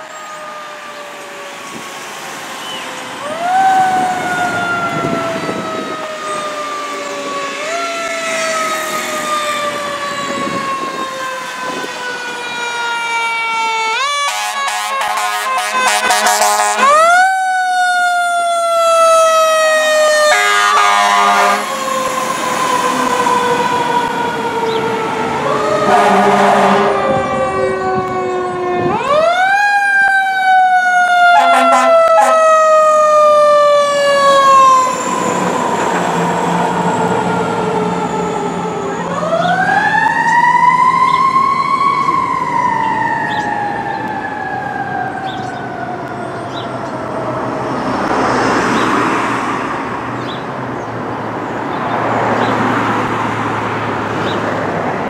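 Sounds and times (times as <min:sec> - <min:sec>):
truck engine: 0:00.0 - 0:30.0, 0:30.6 - 0:55.0
air horn blasts: 0:14.2 - 0:17.1, 0:20.3 - 0:21.8, 0:25.8 - 0:27.2, 0:31.3 - 0:32.5.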